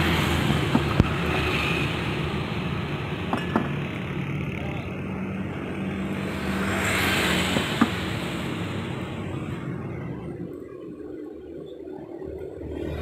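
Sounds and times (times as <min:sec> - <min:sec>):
wok stall cooking noise: 0:00.0 - 0:10.2
motor vehicle passing: 0:00.0 - 0:10.6.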